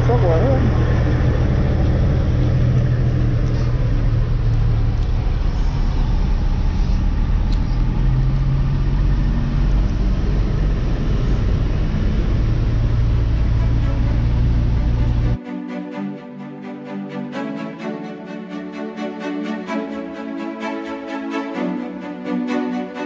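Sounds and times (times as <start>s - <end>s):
truck diesel engine rumbling: 0.0s - 15.4s.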